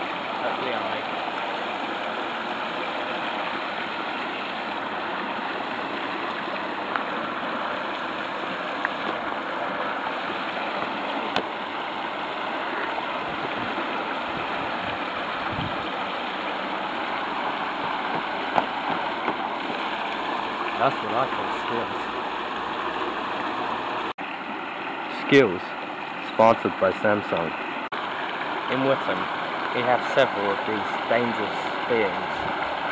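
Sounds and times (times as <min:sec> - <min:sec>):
water rushing over weir: 0:00.0 - 0:32.9
sharp knocks: 0:18.0 - 0:19.4.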